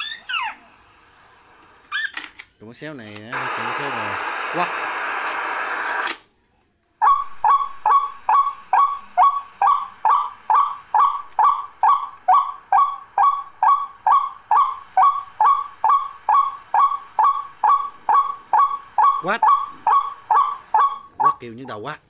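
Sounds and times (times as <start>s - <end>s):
recorded bird call: 7.0s - 22.0s.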